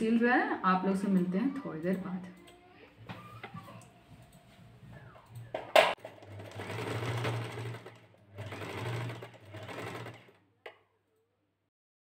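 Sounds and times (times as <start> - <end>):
sewing machine stitching: 5.9 - 10.4.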